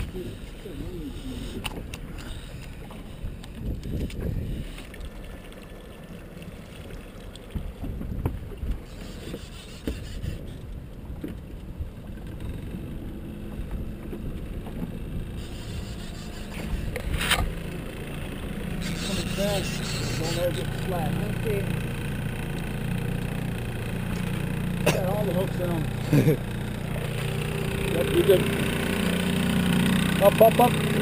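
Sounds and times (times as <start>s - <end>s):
water slapping boat hull: 0.0s - 31.0s
wind buffeting microphone: 3.3s - 4.8s, 7.6s - 8.9s
knocks around boat: 7.6s - 8.8s, 13.4s - 15.2s.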